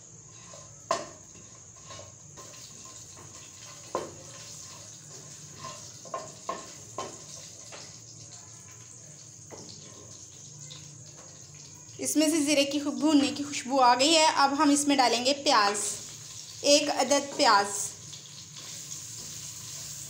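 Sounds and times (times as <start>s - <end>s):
seeds sizzling in hot oil: 0.0s - 20.0s
wooden spatula scraping pan: 0.2s - 7.2s.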